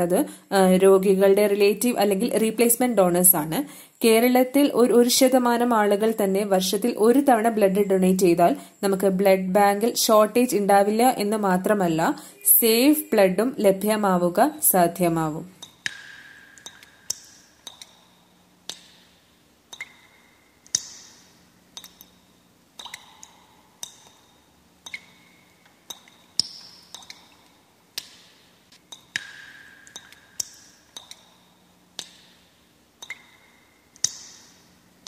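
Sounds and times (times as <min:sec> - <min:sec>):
drip-like plinks: 0:19.7 - 0:21.2.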